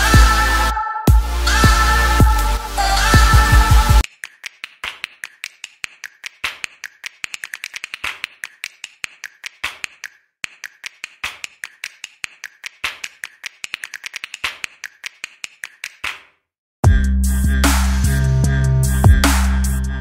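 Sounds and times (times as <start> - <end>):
computer keyboard typing: 4.0 - 16.2.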